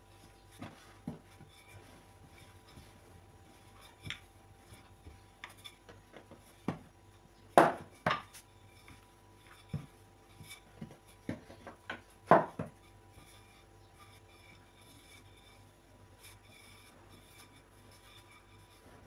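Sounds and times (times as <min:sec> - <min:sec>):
rolling pin knocking on board: 0:07.6 - 0:08.3, 0:10.8 - 0:12.8.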